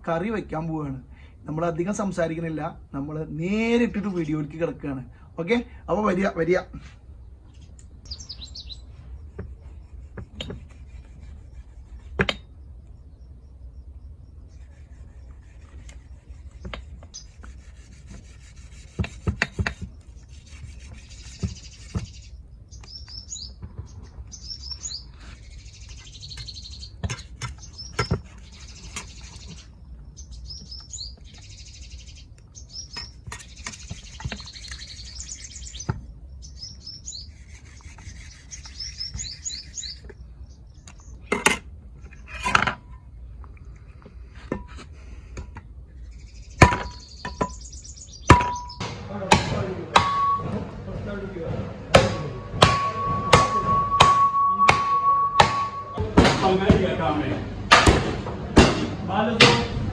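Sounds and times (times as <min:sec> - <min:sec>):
small birds chirping: 0:05.3 - 0:42.4, 0:45.0 - 0:51.4.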